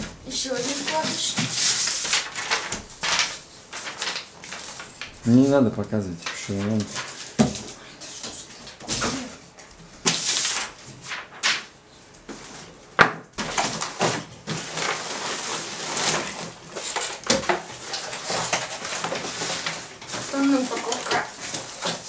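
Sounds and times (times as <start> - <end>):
cardboard rustling and scraping: 0.0 - 5.6, 13.4 - 22.0.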